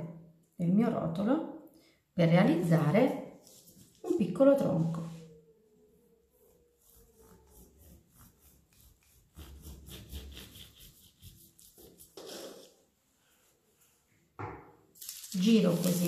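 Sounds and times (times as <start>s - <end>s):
brushing sounds: 2.7s - 5.3s, 6.3s - 14.2s
knife sawing through dough: 6.8s - 12.6s.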